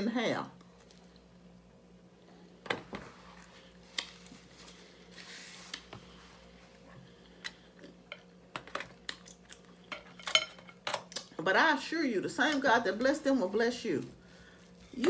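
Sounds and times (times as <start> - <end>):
faint steady hum: 0.0 - 15.0
chewing bread with clicks: 8.9 - 9.8.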